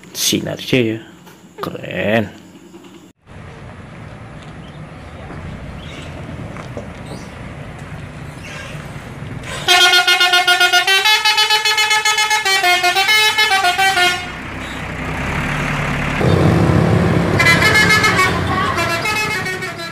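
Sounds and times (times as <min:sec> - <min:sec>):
coach engine idling: 0:03.3 - 0:19.9
musical air horn warbling tune: 0:09.6 - 0:14.4, 0:17.1 - 0:19.9.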